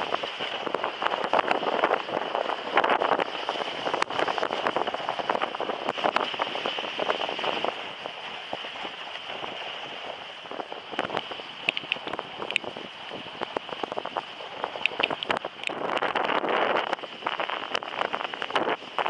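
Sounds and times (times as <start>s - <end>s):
sled runners hissing on snow: 0.0s - 11.6s
small clicks and crunches: 14.8s - 15.8s.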